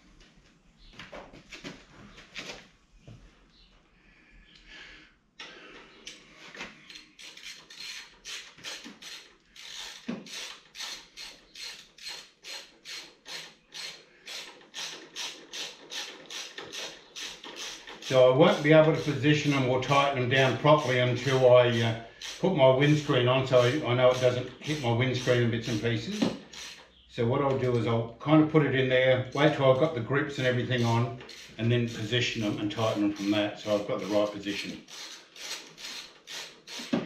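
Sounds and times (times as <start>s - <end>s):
ratchet wrench clicking: 6.9s - 19.6s, 20.4s - 26.9s, 30.7s - 37.0s.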